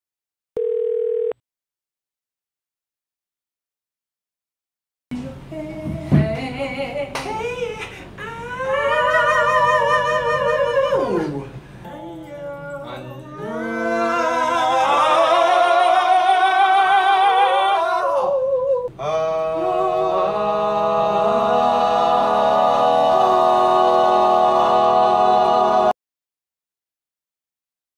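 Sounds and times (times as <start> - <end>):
men singing a cappella: 5.1 - 26.0.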